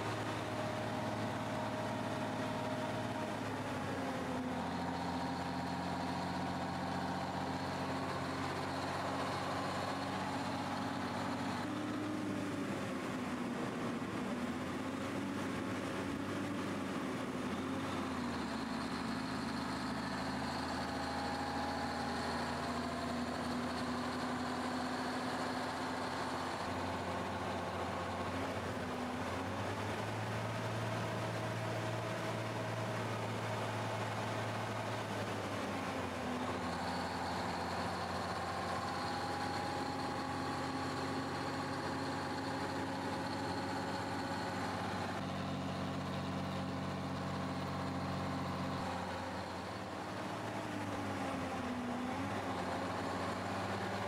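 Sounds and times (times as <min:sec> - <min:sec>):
diesel truck engine running: 0:00.0 - 0:54.0.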